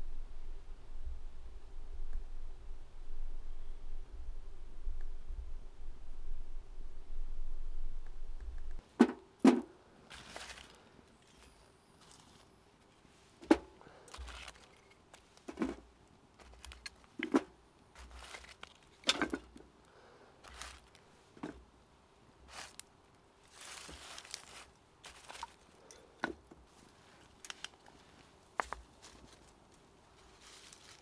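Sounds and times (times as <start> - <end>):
rustling: 10.1 - 21.6, 22.4 - 31.0.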